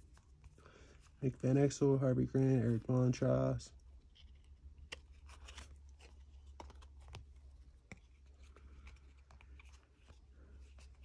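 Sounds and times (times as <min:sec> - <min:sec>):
low steady hum: 0:00.0 - 0:11.0
cards being flipped through: 0:04.0 - 0:11.0.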